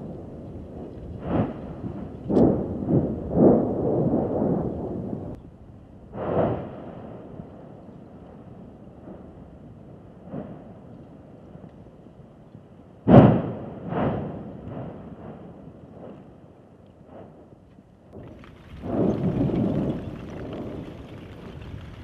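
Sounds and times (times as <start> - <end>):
volcanic blasts with rumbling: 0.0 - 22.0
faint volcanic pops: 0.4 - 3.1, 16.0 - 22.0.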